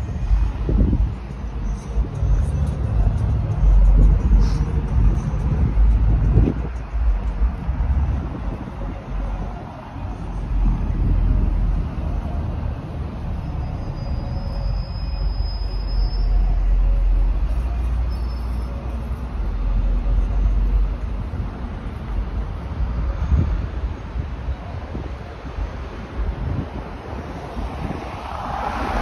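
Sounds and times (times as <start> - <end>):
wind buffeting microphone: 0.0 - 12.9, 21.0 - 29.0
road traffic rumble: 0.0 - 29.0
faint high squeal: 13.2 - 19.2.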